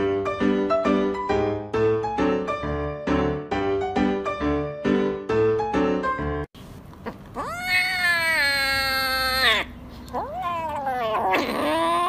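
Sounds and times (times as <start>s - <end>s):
kitten meowing: 7.0s - 12.0s.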